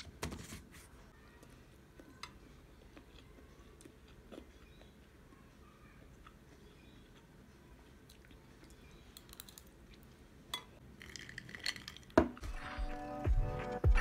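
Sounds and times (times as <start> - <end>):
soft music: 12.4 - 14.0.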